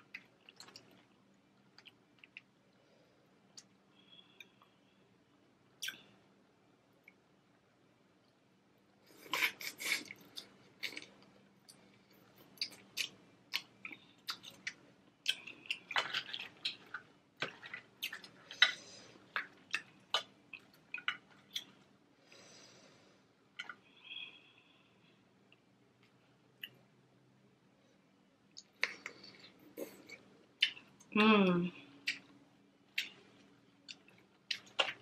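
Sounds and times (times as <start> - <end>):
wet eating sounds: 9.0 - 21.8, 32.9 - 35.0.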